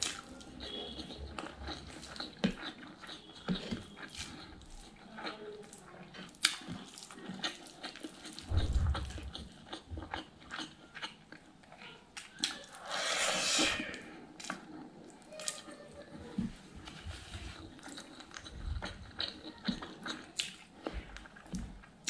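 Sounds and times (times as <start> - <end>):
chewing and mouth smacks: 0.0 - 12.8, 14.3 - 22.0
low thump: 8.5 - 9.2.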